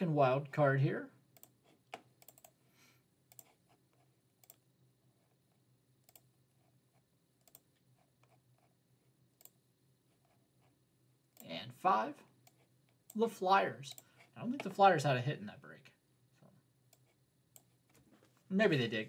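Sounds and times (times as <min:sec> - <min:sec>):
computer mouse clicks: 0:01.4 - 0:02.6, 0:03.3 - 0:04.6, 0:06.0 - 0:06.3, 0:07.4 - 0:08.4, 0:16.9 - 0:18.0.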